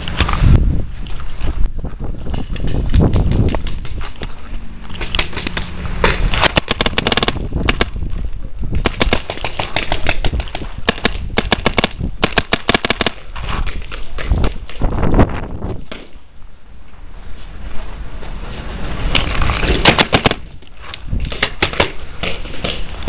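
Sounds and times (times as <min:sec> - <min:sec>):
microphone handling rumble: 0:00.0 - 0:09.2, 0:13.2 - 0:16.2
low wind on microphone: 0:00.0 - 0:23.0
paintball markers firing: 0:05.0 - 0:08.0, 0:08.8 - 0:14.8, 0:19.2 - 0:20.4, 0:21.3 - 0:22.8.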